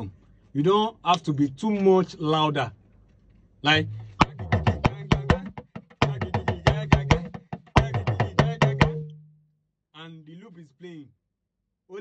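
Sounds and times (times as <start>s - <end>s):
talking drum strokes: 3.7s - 9.1s.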